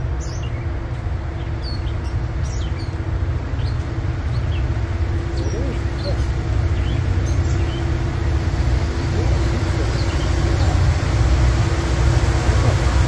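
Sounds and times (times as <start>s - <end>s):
diesel locomotive engines rumbling: 0.0s - 13.0s
steady engine hum: 0.0s - 13.0s
birds chirping faintly: 1.4s - 11.0s.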